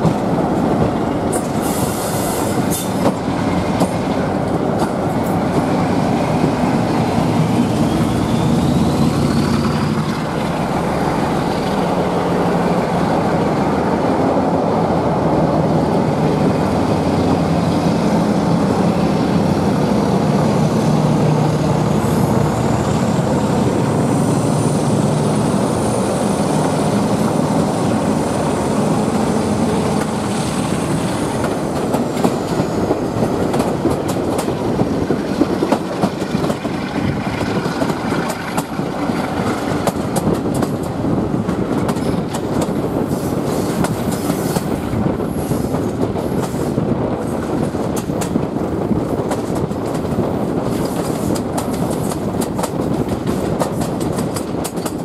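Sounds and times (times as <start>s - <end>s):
rushing air: 0.0s - 55.0s
train wheels rumbling: 0.0s - 55.0s
high wheel squeal: 7.6s - 10.0s
wheels clicking over rail joints: 29.7s - 45.1s, 45.8s - 55.0s.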